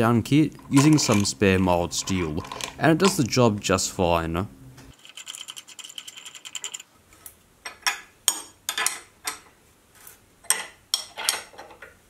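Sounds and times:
spanner clicking: 0:04.9 - 0:06.8.

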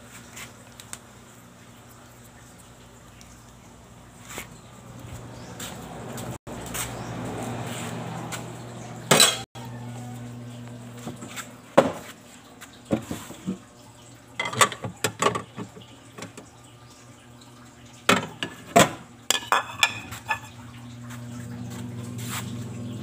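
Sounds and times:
metal pots and utensils clinking: 0:09.0 - 0:09.5, 0:14.4 - 0:16.4, 0:18.1 - 0:20.7.

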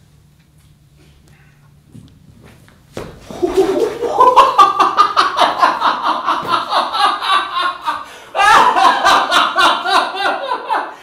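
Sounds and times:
loud joyful laughter: 0:03.3 - 0:11.0.

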